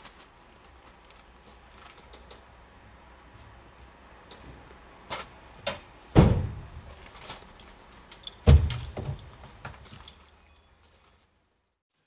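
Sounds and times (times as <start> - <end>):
knocks and bangs on metal wagon: 6.2 - 6.7, 8.4 - 9.8.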